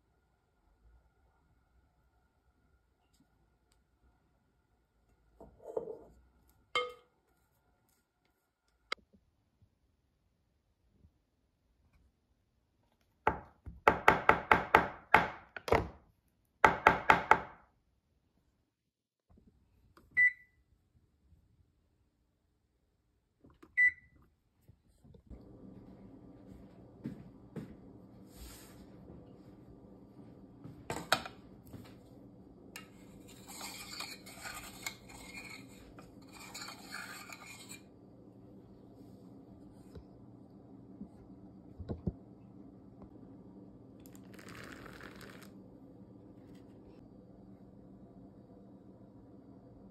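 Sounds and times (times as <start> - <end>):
light scraping and rubbing: 32.8 - 37.9.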